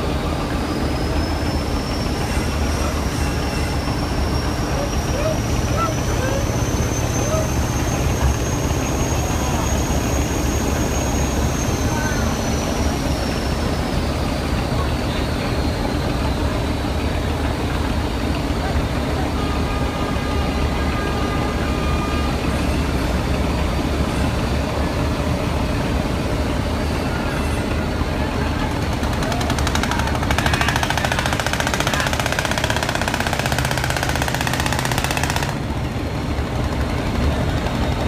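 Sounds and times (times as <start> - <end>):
boat engine rumbling: 0.0 - 38.0
fast mechanical rattle: 28.7 - 38.0.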